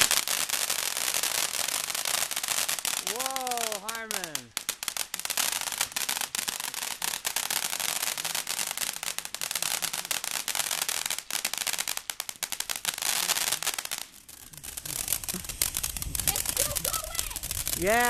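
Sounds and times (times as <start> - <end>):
firework crackling and popping: 0.0 - 18.0.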